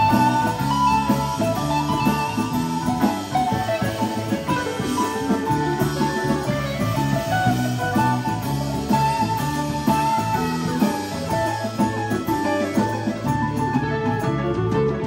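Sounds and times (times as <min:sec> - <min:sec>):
congas: 0:00.0 - 0:15.0
electric guitar lines: 0:00.0 - 0:15.0
live band playing instrumental: 0:00.0 - 0:15.0.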